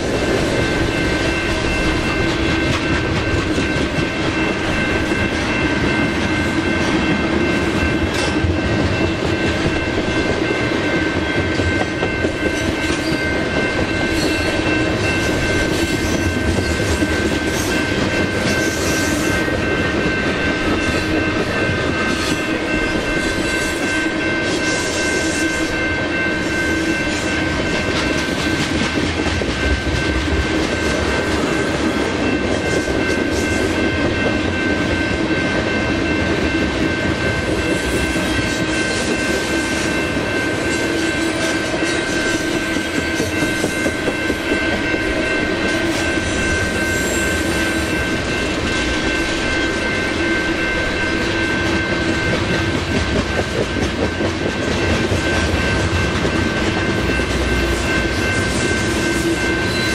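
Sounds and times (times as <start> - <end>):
freight train wheels clacking: 0.0 - 59.9
steady high tones: 0.0 - 59.9.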